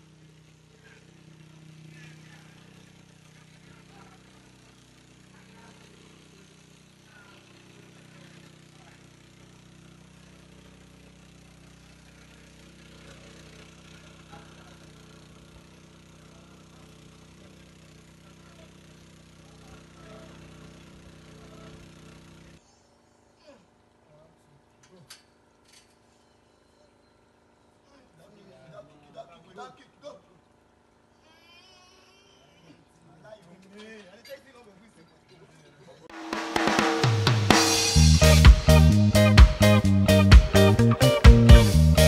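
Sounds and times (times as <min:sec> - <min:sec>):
small engine humming: 0:00.0 - 0:22.6, 0:36.1 - 0:42.0.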